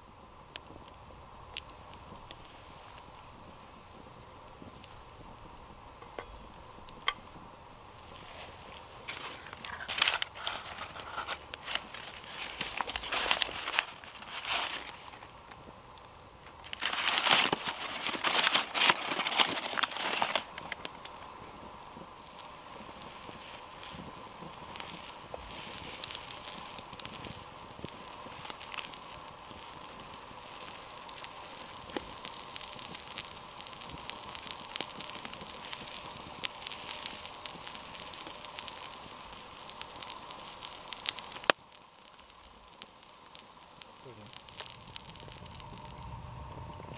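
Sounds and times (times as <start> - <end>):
batter sizzling in a pan: 0.0 - 46.9
paper bag crinkling: 8.2 - 15.3, 16.5 - 20.8.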